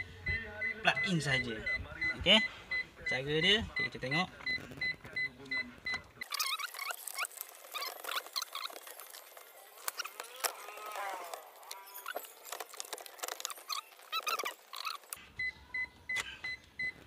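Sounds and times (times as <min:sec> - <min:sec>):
plastic squeaking: 0:06.2 - 0:15.2.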